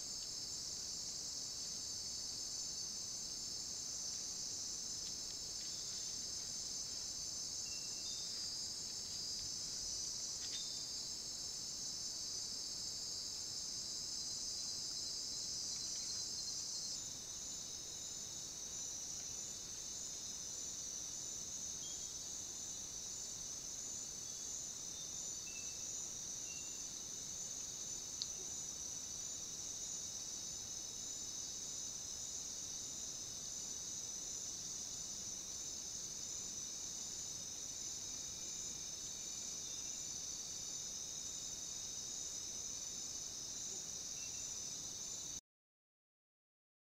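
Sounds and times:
crickets trilling: 0.0 - 45.4
faint click: 28.2 - 28.4.

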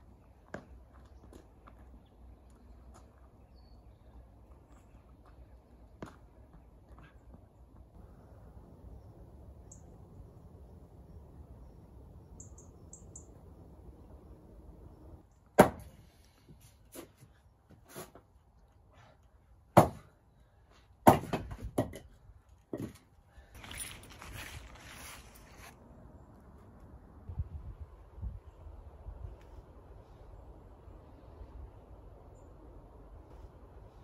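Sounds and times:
axe chopping wood: 15.6 - 15.9, 19.8 - 20.1, 21.0 - 22.0.

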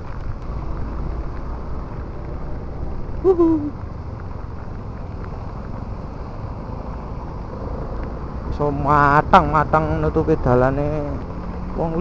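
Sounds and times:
motorcycle road noise: 0.0 - 12.0
wind rumble: 0.0 - 12.0.

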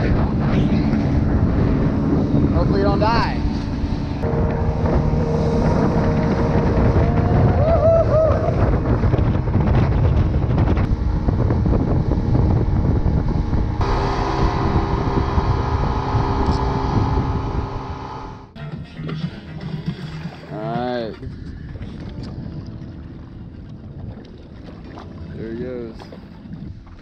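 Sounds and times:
outboard motor running: 0.0 - 7.6, 8.3 - 18.6
wind buffeting microphone: 0.0 - 18.6, 20.9 - 27.0
water rushing: 0.9 - 7.5, 12.6 - 18.6.

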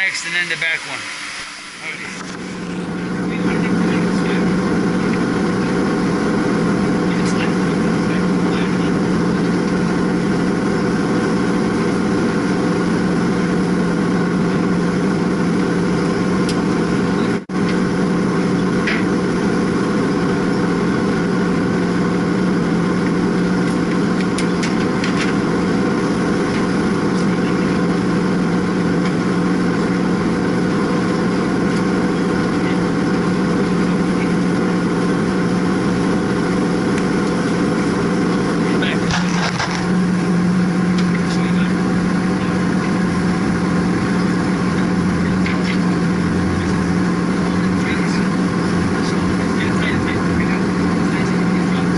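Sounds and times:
machinery drone with low hum: 0.0 - 51.9.

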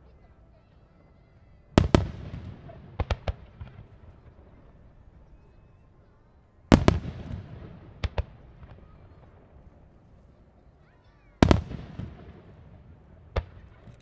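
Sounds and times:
firework sharp cracks: 1.8 - 4.7, 6.7 - 9.3, 11.4 - 14.0
firework booms with rumbling echo: 1.8 - 5.0, 6.7 - 9.6, 11.4 - 13.9.

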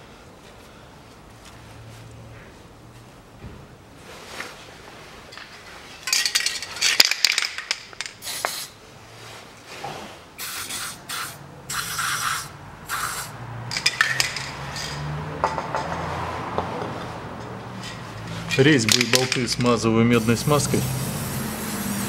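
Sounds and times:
aerosol spray hissing: 8.2 - 8.7, 10.4 - 13.3, 20.2 - 22.0.

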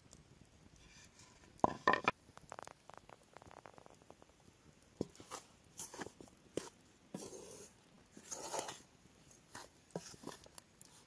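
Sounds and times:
spoon scraping and stirring: 5.0 - 11.0.

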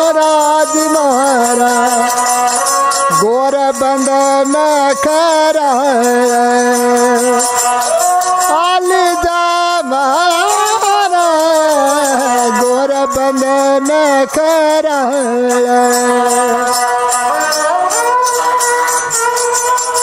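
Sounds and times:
bowed fiddle folk melody: 12.1 - 20.0.

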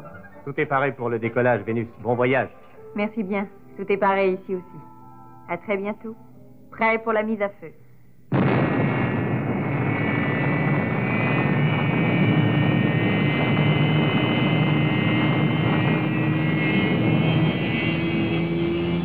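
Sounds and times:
rocket engines roaring: 8.3 - 19.0.

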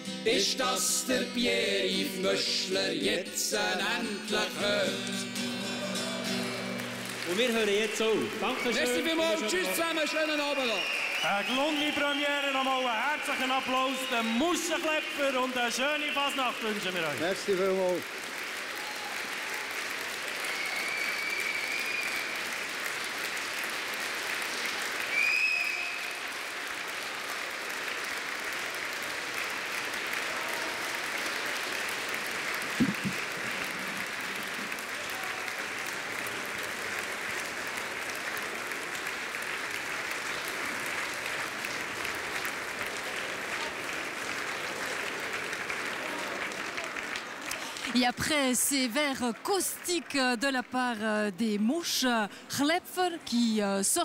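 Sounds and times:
audience applauding: 4.4 - 51.6
shrill whistles: 10.5 - 12.7, 20.4 - 22.5, 25.1 - 26.3.

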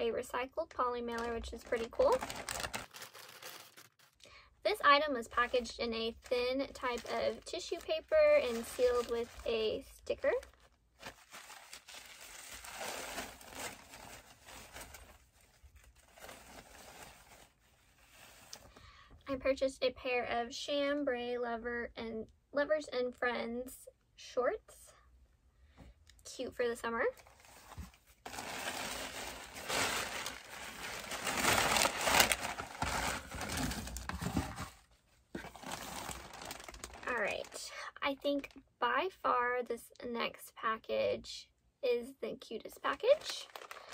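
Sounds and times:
tissue paper rustling: 1.1 - 4.2, 5.3 - 18.8, 27.2 - 37.6, 43.1 - 43.9.

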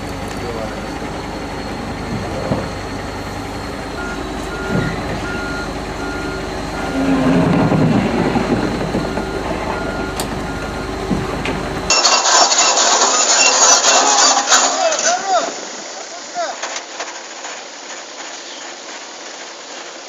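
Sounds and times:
excavator diesel engine running: 0.0 - 20.0
travel alarm short beeps: 4.0 - 7.2, 8.8 - 11.0.

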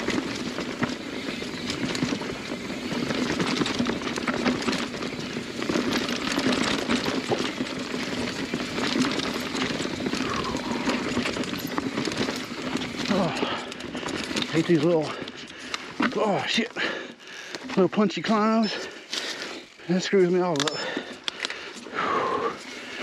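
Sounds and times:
bike knocks and rattles: 0.0 - 17.0
tyre and trail noise: 0.0 - 23.0.

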